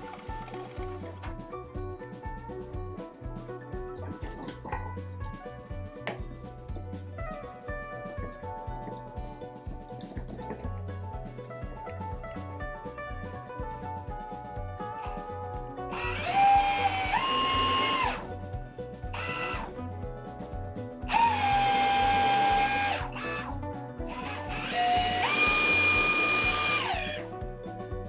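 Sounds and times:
background music with steady beat: 0.0 - 28.0
cordless drill drilling into wood: 15.9 - 18.3, 19.2 - 19.7, 21.1 - 23.5, 24.1 - 27.2.

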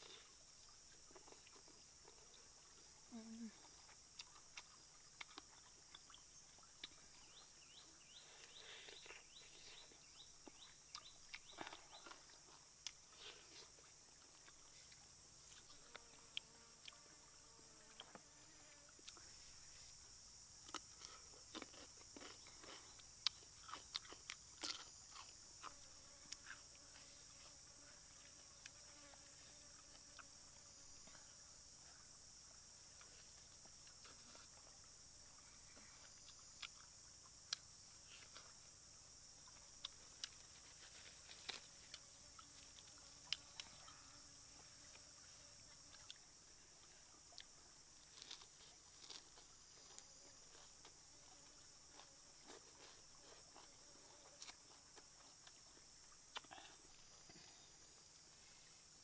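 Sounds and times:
high-pitched insect chorus: 0.0 - 59.0
chewing and lip smacks: 4.1 - 7.0, 56.3 - 56.7.

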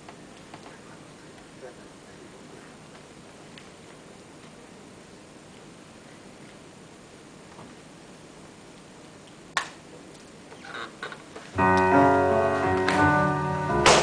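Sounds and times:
quiet hiss: 0.0 - 14.0
tango music with piano: 11.5 - 14.0.

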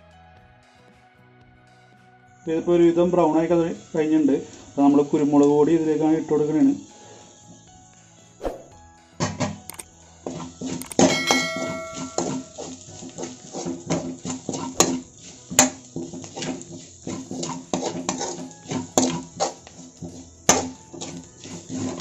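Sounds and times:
background music: 0.0 - 22.0
onions frying: 3.3 - 7.9, 10.0 - 22.0
spoon scraping a pan: 9.7 - 22.0
brief metallic ring: 10.9 - 12.5.

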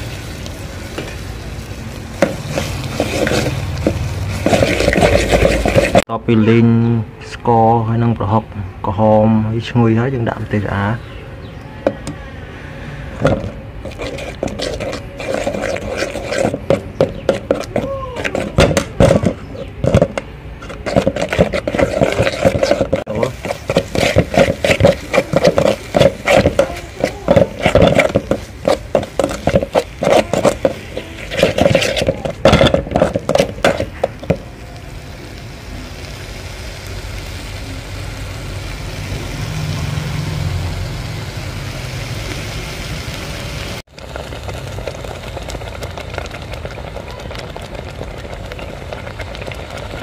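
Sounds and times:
metal spoon scraping a pot: 2.2 - 6.0, 13.2 - 34.4.

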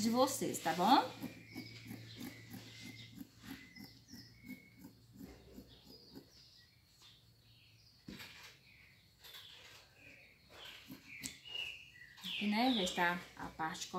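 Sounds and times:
scissors snipping fabric: 0.7 - 6.4.

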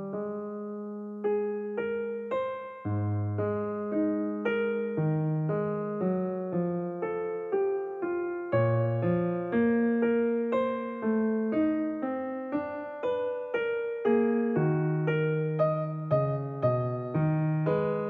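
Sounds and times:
slow piano music: 0.0 - 18.0.

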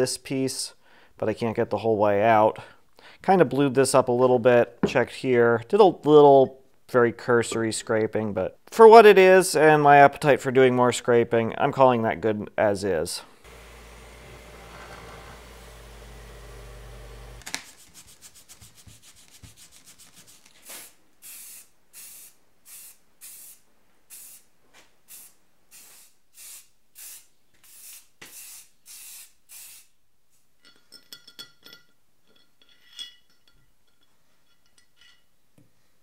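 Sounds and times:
bench grinder motor humming: 13.4 - 17.5
spray can hissing: 13.5 - 24.4, 25.1 - 29.9.

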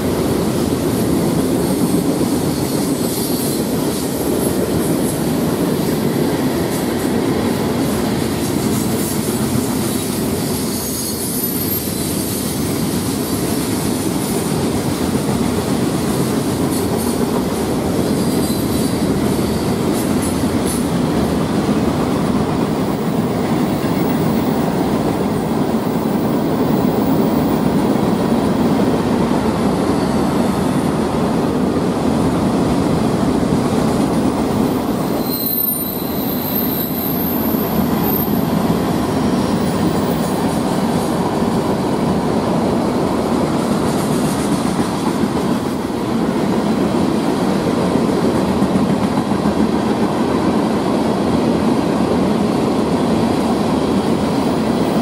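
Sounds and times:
train wheels rumbling on rail: 0.0 - 55.0
high-pitched wheel squeal: 10.5 - 12.4, 34.8 - 38.5.

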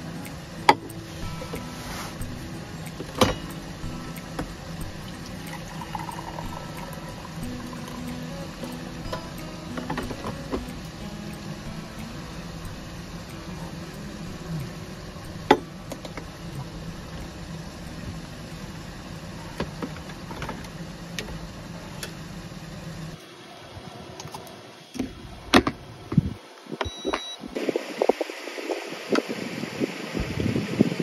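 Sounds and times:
steady low hum: 0.0 - 28.6
wind noise: 25.0 - 31.0
short electronic beep: 26.9 - 27.4.

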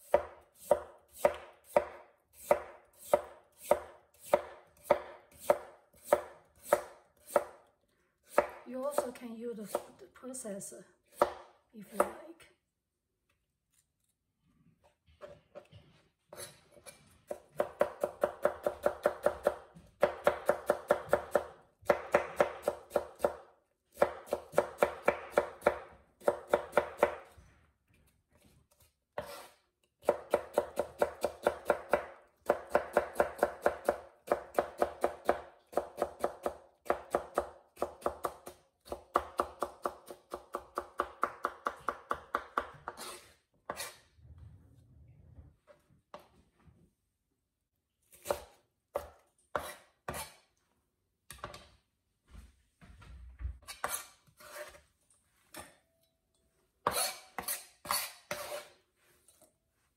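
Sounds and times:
knife cutting on cutting board: 16.3 - 17.4, 28.4 - 30.2, 42.8 - 44.1, 48.1 - 50.5, 53.6 - 54.8, 56.8 - 59.5.

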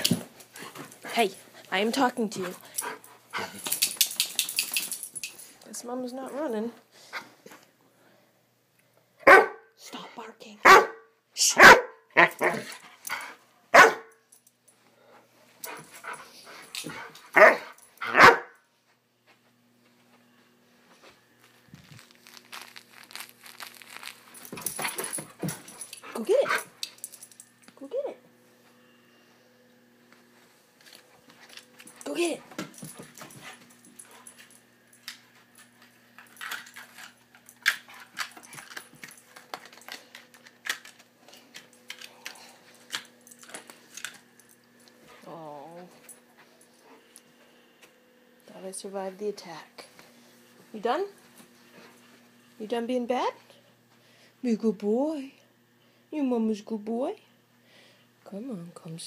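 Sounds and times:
dog barking: 9.2 - 9.7, 10.6 - 12.6, 13.7 - 14.2, 17.4 - 18.6.

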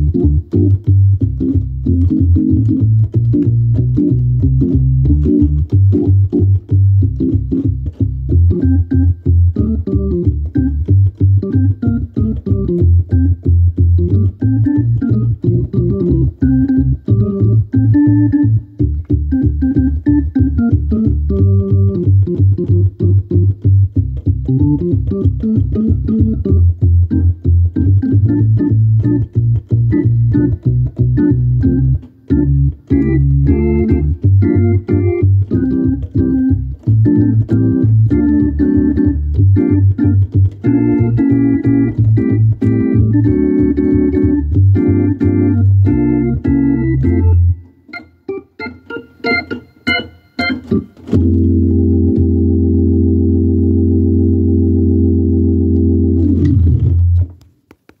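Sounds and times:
organ playing chords: 0.0 - 57.2.

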